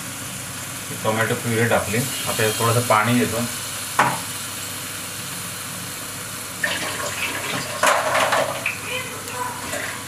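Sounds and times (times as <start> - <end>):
frying sizzle: 0.0 - 10.0
water splashing into pan: 6.6 - 8.8.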